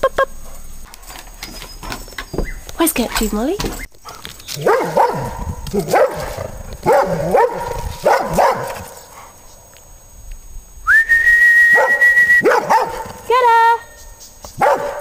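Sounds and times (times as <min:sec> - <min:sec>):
dog barking: 0:04.0 - 0:09.4, 0:11.7 - 0:13.2, 0:14.6 - 0:15.0
person whistling: 0:10.8 - 0:12.5.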